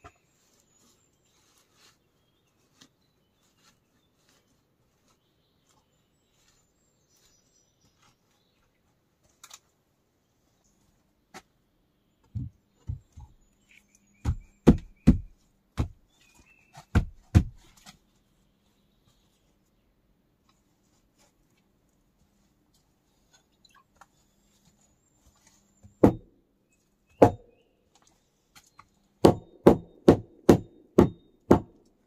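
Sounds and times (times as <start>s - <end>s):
faint bird chirps: 11.8s - 15.5s, 16.1s - 16.9s, 23.1s - 26.0s
dull thuds: 14.2s - 16.1s, 16.7s - 17.8s, 25.9s - 26.3s.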